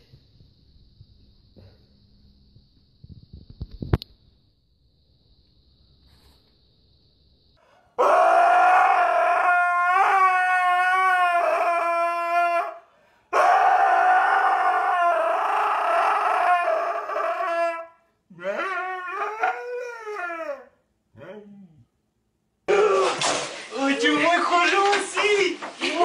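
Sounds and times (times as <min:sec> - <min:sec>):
husky howling: 0:08.0 - 0:21.8.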